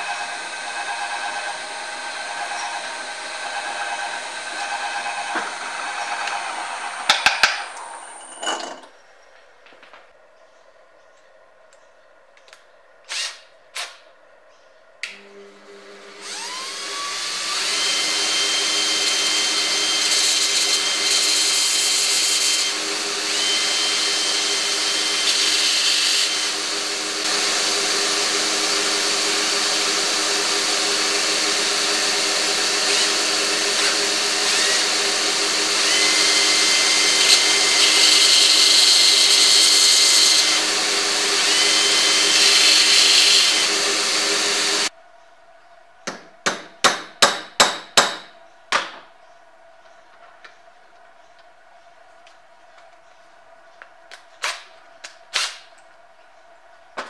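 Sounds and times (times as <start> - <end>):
belt grinder running: 0.0 - 8.8, 15.9 - 44.9
drill whining: 0.0 - 8.9, 13.1 - 13.9, 15.3 - 44.9
grinding hiss: 0.0 - 9.0.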